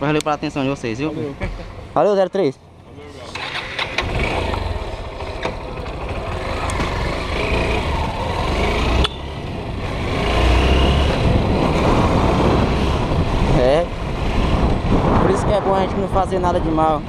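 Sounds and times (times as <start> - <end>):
motorcycle engine running: 3.3 - 14.9.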